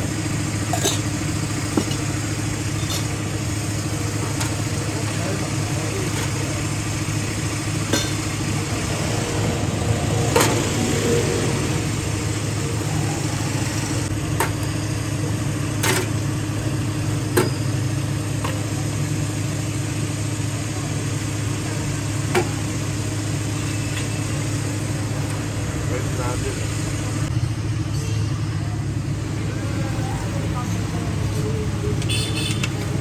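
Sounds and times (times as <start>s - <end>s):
engine idling: 0.0s - 33.0s.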